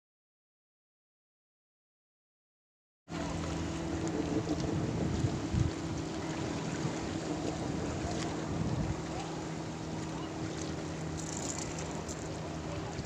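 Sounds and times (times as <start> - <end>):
motorboat engine humming: 3.1 - 13.0
wind buffeting microphone: 3.2 - 13.0.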